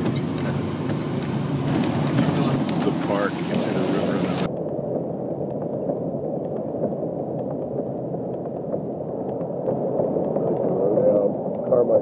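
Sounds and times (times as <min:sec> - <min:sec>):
car cabin rumble in rain: 0:00.0 - 0:04.5.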